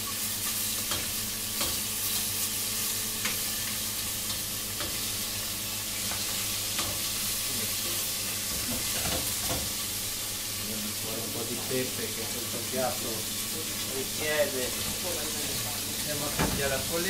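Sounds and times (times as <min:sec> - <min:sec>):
fish sizzling in oil: 0:00.0 - 0:17.0
metal utensil clicking on pan: 0:00.9 - 0:01.8.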